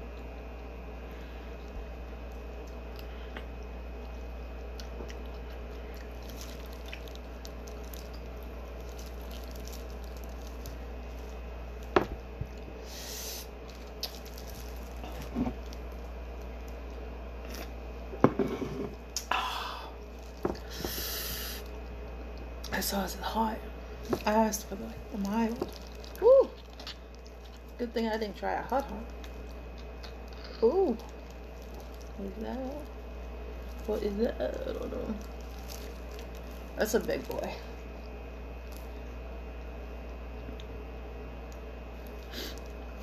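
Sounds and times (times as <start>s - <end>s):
steady low hum: 0.0s - 43.0s
wet chewing and squishing: 1.6s - 12.7s, 13.6s - 17.8s, 25.1s - 27.8s, 28.8s - 32.2s, 35.0s - 37.2s
short hissing noises: 12.8s - 13.5s, 20.7s - 21.6s.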